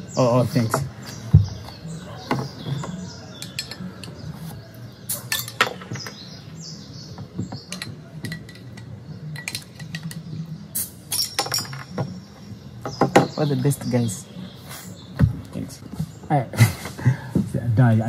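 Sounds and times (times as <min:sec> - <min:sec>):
low background noise: 0:00.0 - 0:18.0
glasses and bottles clinking: 0:03.4 - 0:04.2, 0:05.3 - 0:06.2, 0:07.7 - 0:10.2, 0:11.1 - 0:12.1.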